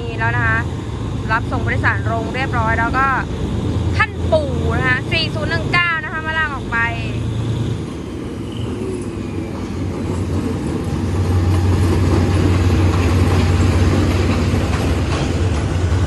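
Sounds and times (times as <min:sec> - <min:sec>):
diesel locomotive engine humming: 0:00.0 - 0:16.0.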